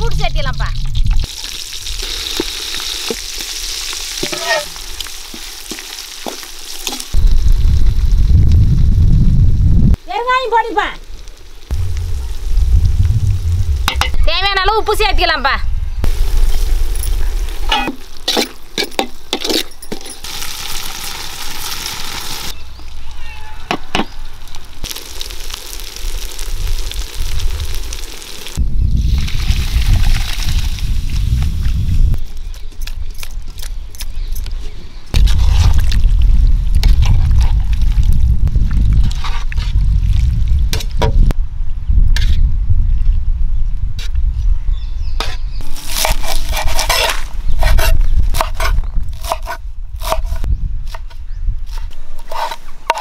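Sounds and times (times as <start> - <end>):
low rumble: 0.0 - 1.3, 7.2 - 10.0, 11.7 - 17.4, 35.2 - 43.9
sizzling: 0.0 - 15.4, 16.0 - 23.1, 24.1 - 32.2.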